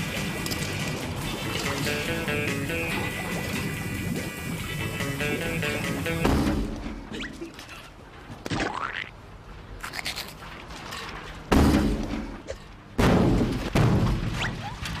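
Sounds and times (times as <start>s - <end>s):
steel drum buckling with metallic bangs: 11.5s - 12.4s, 13.0s - 14.4s.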